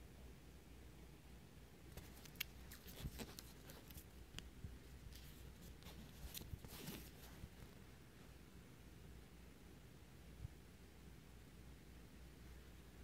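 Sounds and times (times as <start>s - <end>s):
paper pages rustling: 1.9s - 4.1s, 5.1s - 7.6s.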